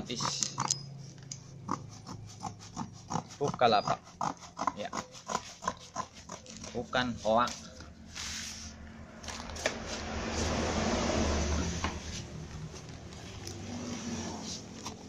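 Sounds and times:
newspaper and cardboard rustling: 6.4 - 10.0.

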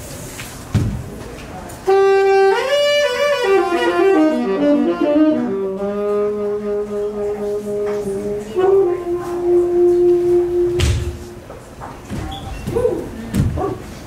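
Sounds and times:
solo saxophone: 1.8 - 11.5.

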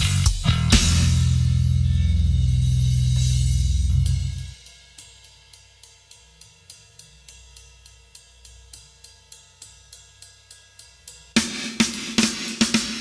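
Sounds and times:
loud low bass note: 0.0 - 4.5
hi-hat ticking: 0.0 - 13.0.

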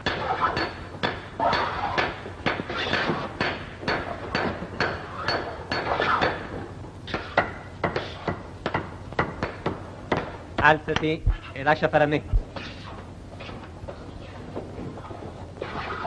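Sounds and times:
hammers knocking on shoes: 7.2 - 11.2.

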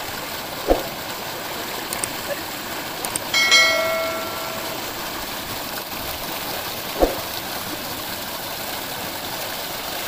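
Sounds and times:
ringing bell chime: 3.4 - 5.1.

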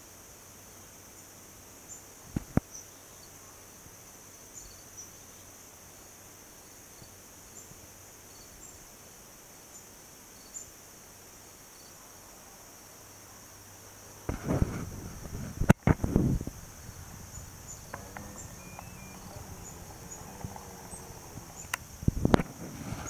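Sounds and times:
crickets trilling: 0.0 - 23.0
sharp clicks: 17.0 - 22.5
short high chirps: 17.7 - 20.2.

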